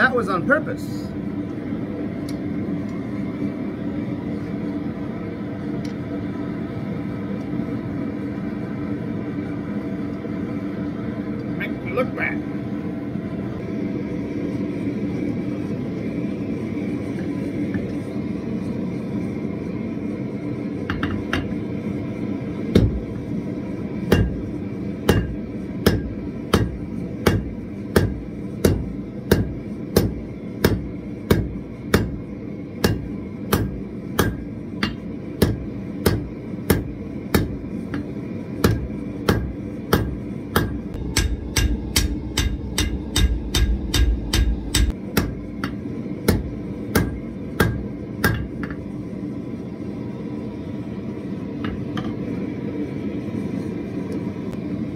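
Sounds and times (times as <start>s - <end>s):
gas forge roaring: 0.0s - 54.9s
hammer striking steel on anvil: 24.1s - 24.4s, 25.0s - 32.2s, 32.8s - 48.8s.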